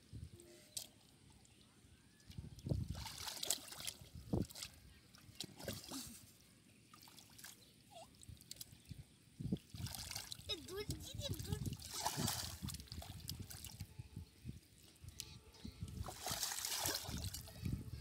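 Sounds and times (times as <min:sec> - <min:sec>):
mud squelching and water sloshing: 0:02.2 - 0:08.9, 0:09.5 - 0:13.9, 0:15.9 - 0:17.8.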